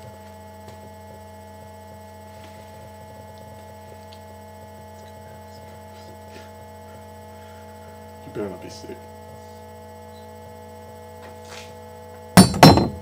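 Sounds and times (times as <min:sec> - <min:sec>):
electrical mains hum: 0:00.0 - 0:13.0.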